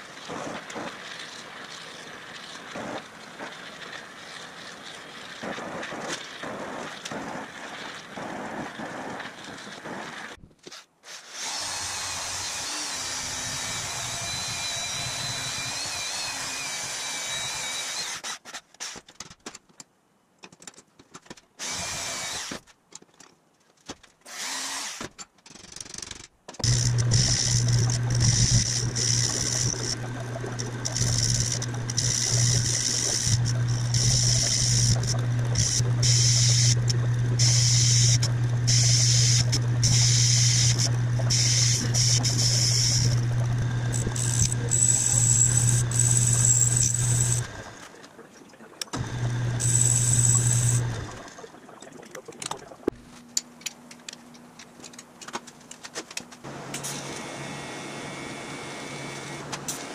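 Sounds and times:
metal lathe running: 0:26.6 - 0:47.7, 0:49.0 - 0:51.1.

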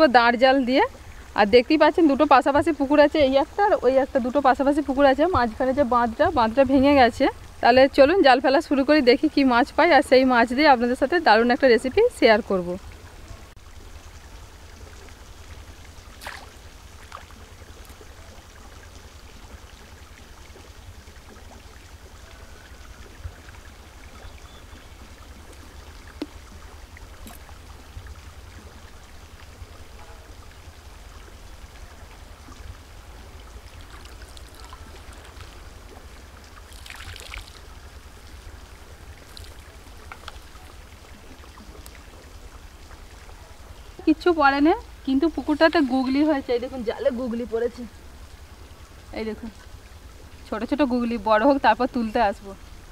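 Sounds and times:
rush of water: 0:00.0 - 0:52.9
water splashing and dripping: 0:00.0 - 0:52.9.

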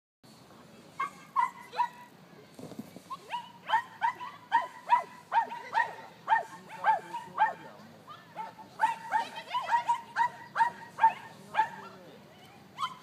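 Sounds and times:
dog barking: 0:01.0 - 0:02.0, 0:03.3 - 0:07.7, 0:08.4 - 0:12.0, 0:12.8 - 0:13.0.

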